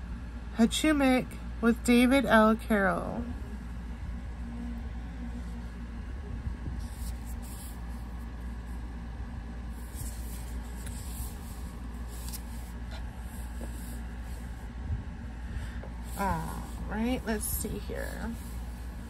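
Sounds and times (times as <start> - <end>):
steady low hum: 0.0 - 19.0
book rustling and scraping: 6.8 - 8.8, 9.6 - 14.7, 16.0 - 19.0.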